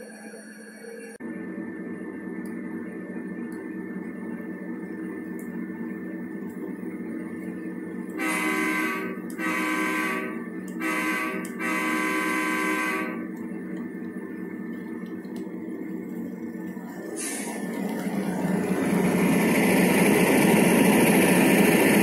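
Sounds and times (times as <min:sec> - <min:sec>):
steady low drone: 0:01.2 - 0:22.0
model locomotive air horn: 0:08.2 - 0:13.4.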